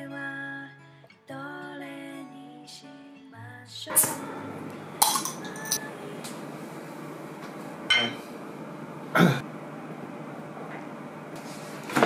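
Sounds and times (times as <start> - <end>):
glassware clinking: 5.0 - 5.9, 7.9 - 8.2.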